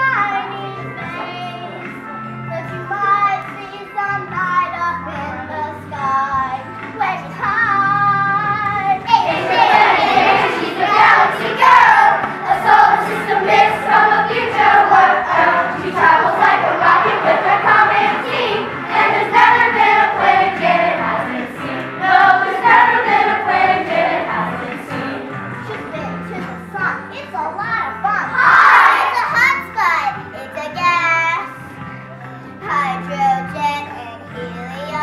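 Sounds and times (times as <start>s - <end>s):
instrumental accompaniment: 8.8s - 26.8s
children singing in a group: 9.2s - 25.4s.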